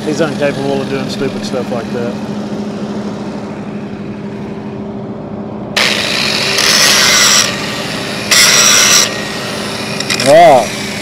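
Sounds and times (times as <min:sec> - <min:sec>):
angle grinder grinding metal: 0:05.8 - 0:11.0.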